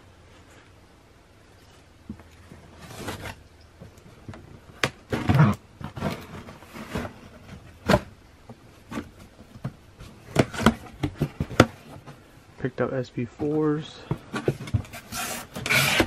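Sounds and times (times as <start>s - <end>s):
cardboard scraping and rustling: 2.4s - 3.4s, 4.1s - 12.3s, 13.5s - 16.0s.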